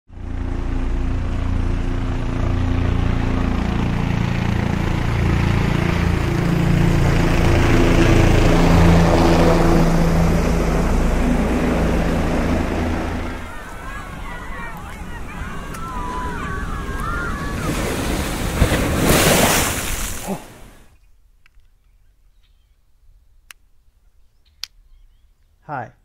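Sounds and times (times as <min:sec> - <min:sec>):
engine droning: 0:00.1 - 0:20.9.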